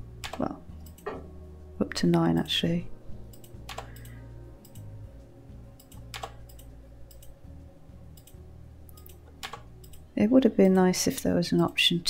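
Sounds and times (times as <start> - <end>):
mouse clicks: 3.3 - 4.8, 5.8 - 7.4
keyboard keystrokes: 5.8 - 7.3.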